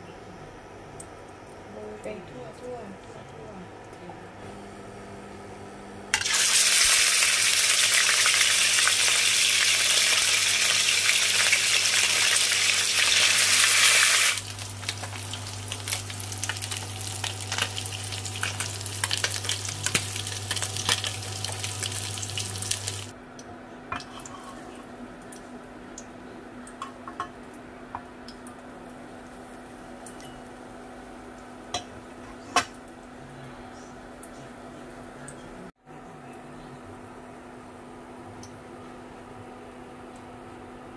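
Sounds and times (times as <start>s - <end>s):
steady low hum: 0.0s - 6.2s, 14.4s - 40.9s
fish sizzling in hot oil: 6.2s - 23.1s.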